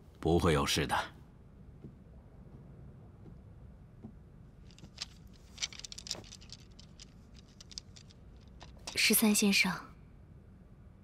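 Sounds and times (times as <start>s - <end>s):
small clicks and rattles: 4.6s - 9.4s.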